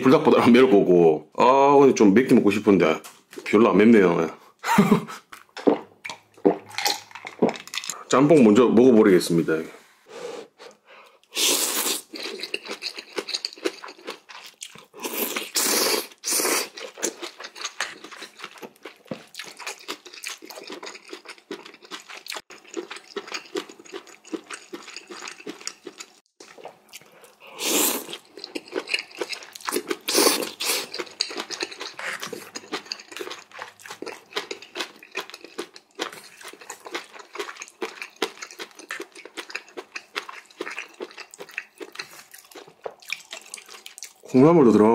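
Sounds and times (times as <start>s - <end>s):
wet chewing and crunching: 5.3s - 8.0s, 11.2s - 44.4s
slurping noodles: 10.1s - 13.6s, 14.9s - 17.0s, 26.5s - 34.2s.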